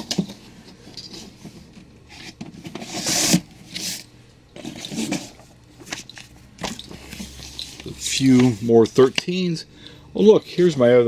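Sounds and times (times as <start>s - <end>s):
comic books sliding and rubbing: 2.1s - 4.0s.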